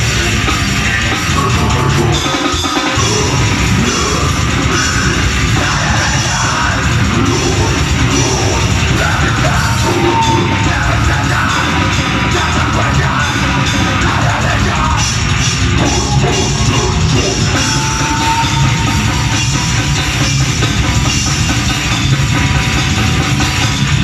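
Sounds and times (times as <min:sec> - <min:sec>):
distorted electric guitar: 0:00.0 - 0:24.0
drums: 0:00.0 - 0:24.0
vocalist yelling: 0:03.0 - 0:15.0.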